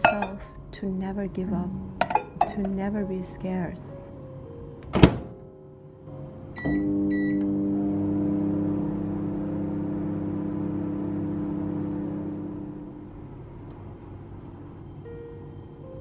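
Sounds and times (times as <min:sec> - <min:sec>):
microwave humming: 0:06.5 - 0:14.8.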